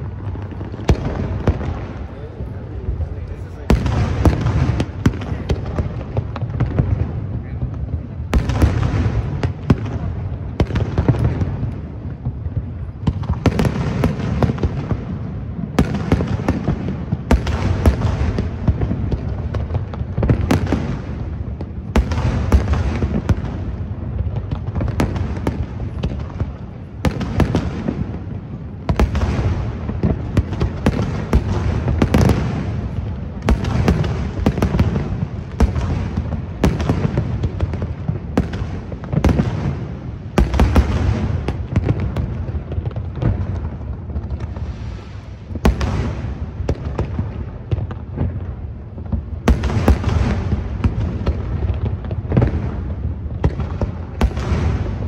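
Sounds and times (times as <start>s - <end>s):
fireworks booming and crackling: 0.0s - 55.0s.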